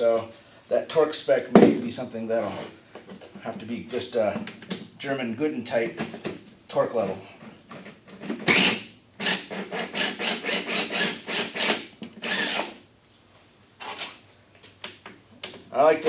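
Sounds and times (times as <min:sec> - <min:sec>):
power drill whining: 0:07.5 - 0:12.8.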